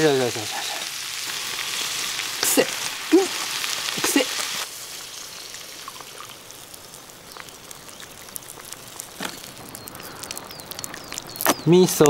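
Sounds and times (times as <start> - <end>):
water pouring into hot skillet: 0.0 - 11.6.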